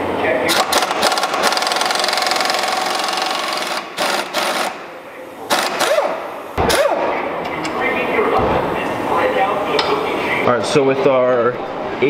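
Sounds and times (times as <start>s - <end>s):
pneumatic impact wrench rattling: 0.5s - 4.8s, 5.5s - 7.0s.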